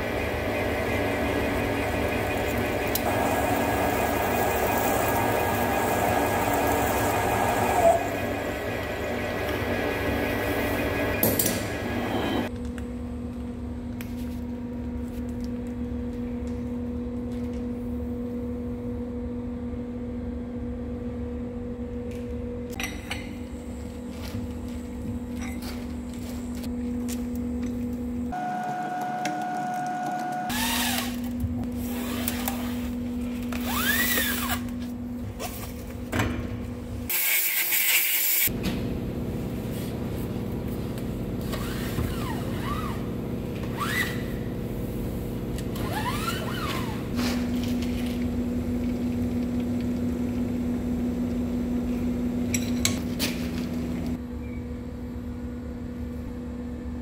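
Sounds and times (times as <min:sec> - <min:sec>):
metal lathe humming: 0:00.0 - 0:12.5.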